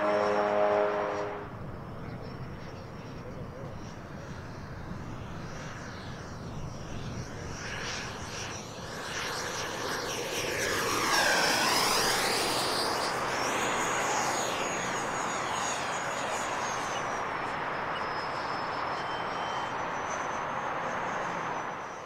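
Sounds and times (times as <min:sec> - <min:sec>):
high fan whine: 0:00.0 - 0:22.0
model jet flying by: 0:01.0 - 0:22.0.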